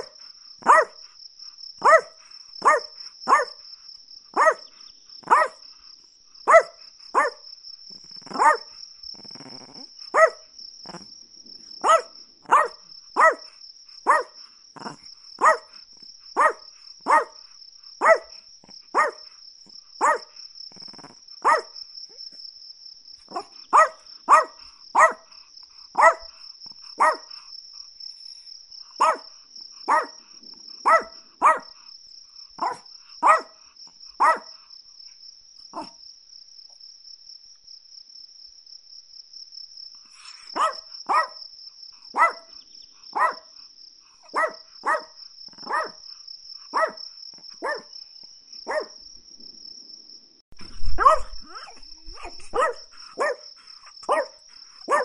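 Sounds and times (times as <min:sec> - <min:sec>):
small dog yapping: 0:00.0 - 0:01.0, 0:01.8 - 0:03.6, 0:04.4 - 0:05.6, 0:06.5 - 0:07.4, 0:08.2 - 0:08.7, 0:09.3 - 0:11.1, 0:11.8 - 0:13.5, 0:14.1 - 0:15.7, 0:16.4 - 0:17.4, 0:18.0 - 0:19.2, 0:20.0 - 0:20.3, 0:21.4 - 0:21.7, 0:23.3 - 0:25.2, 0:26.0 - 0:26.3, 0:27.0 - 0:27.3, 0:29.0 - 0:29.3, 0:29.9 - 0:30.2, 0:30.8 - 0:31.7, 0:32.6 - 0:33.5, 0:34.2 - 0:34.5, 0:35.7 - 0:36.0, 0:40.2 - 0:41.4, 0:42.2 - 0:43.5, 0:44.3 - 0:46.0, 0:46.7 - 0:47.0, 0:47.6 - 0:47.9, 0:48.7 - 0:48.9, 0:50.6 - 0:53.4, 0:54.0 - 0:55.0
high-pitched cricket-like trill: 0:00.0 - 0:11.1, 0:40.0 - 0:43.7, 0:50.6 - 0:55.0.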